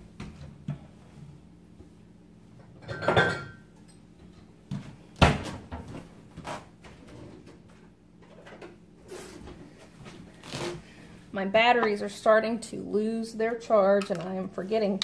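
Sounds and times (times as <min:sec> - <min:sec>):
dishes clattering: 0:02.7 - 0:03.7.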